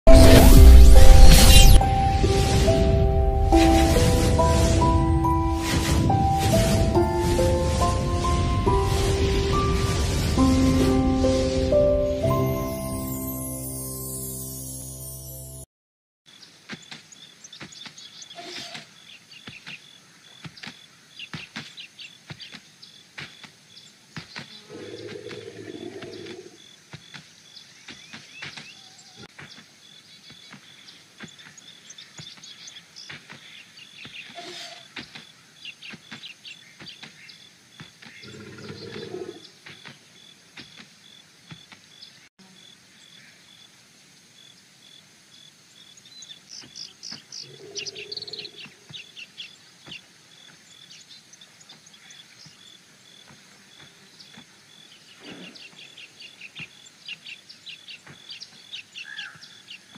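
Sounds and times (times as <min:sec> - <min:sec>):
small birds chirping: 0:16.3 - 0:43.6, 0:44.2 - 0:59.9
low animal calls: 0:38.2 - 0:39.4.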